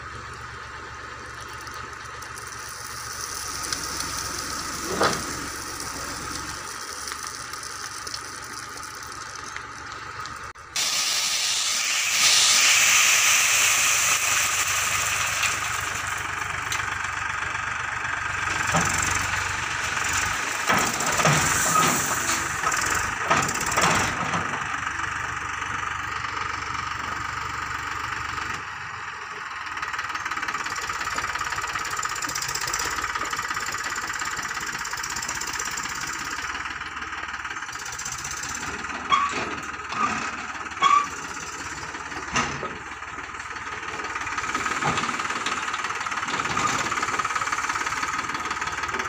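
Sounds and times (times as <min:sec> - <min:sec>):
tractor diesel engine clattering: 0:00.0 - 0:49.0
gravel sliding and rattling: 0:00.2 - 0:25.8, 0:30.2 - 0:49.0
short high squeaks: 0:39.0 - 0:41.5.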